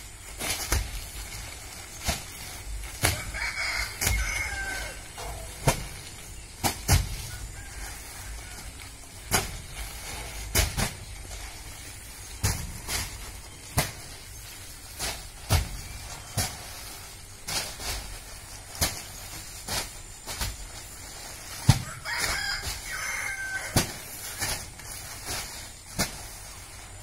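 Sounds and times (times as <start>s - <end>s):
sacks dropping with dull thuds: 0.0s - 27.0s
rooster crowing: 3.1s - 5.6s, 7.3s - 8.8s, 21.8s - 24.0s.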